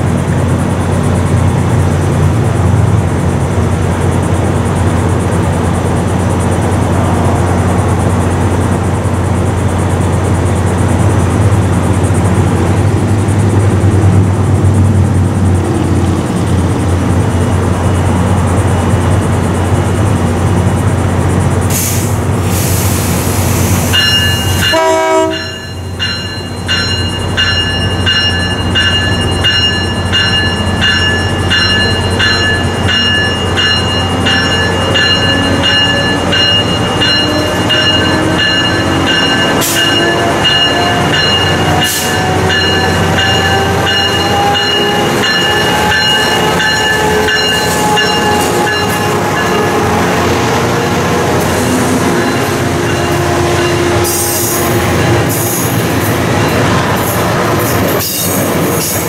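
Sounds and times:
train passing: 0.0s - 59.0s
crossing bell ringing: 23.8s - 59.0s.

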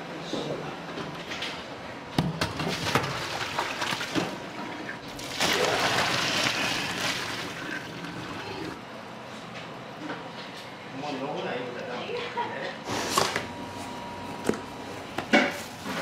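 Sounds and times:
water pouring and splashing: 5.0s - 8.7s.

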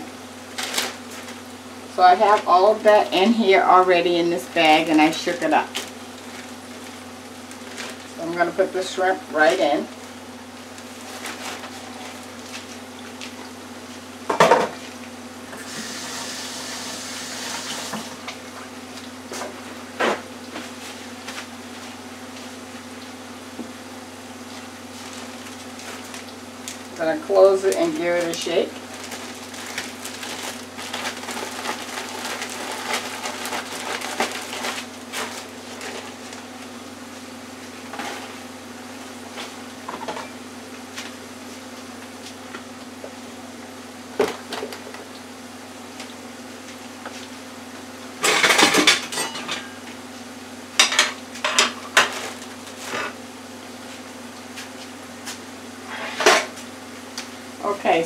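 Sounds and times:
plastic bag being shaken: 27.9s - 36.5s
kitchen utensils clinking: 48.2s - 49.8s.

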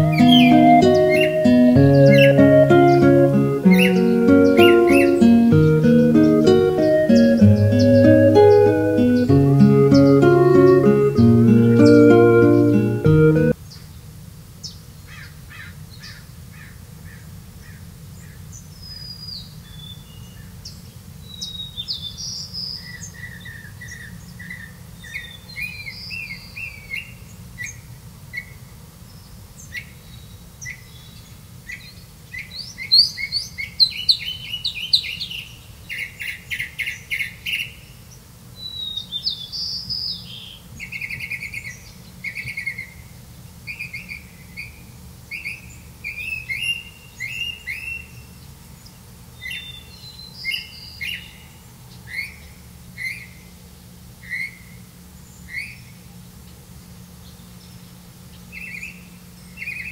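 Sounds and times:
nestlings chirping: 0.0s - 13.5s.

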